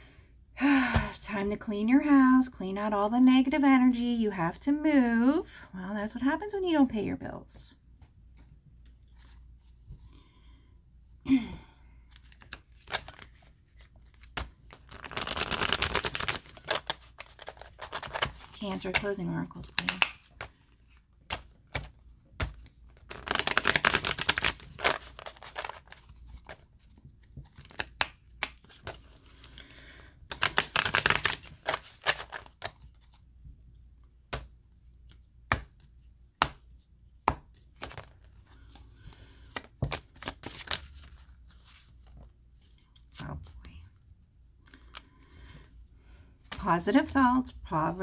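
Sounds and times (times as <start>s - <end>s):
cards riffle shuffled: 12.1s - 29.5s, 30.3s - 33.2s, 34.3s - 43.2s.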